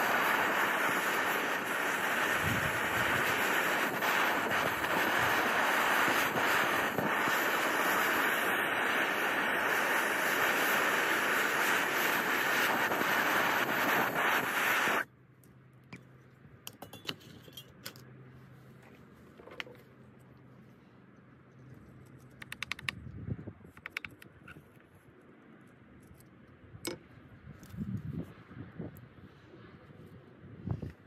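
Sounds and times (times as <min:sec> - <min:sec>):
gas torch hissing: 0:00.0 - 0:15.1
faint clicks: 0:22.0 - 0:23.1.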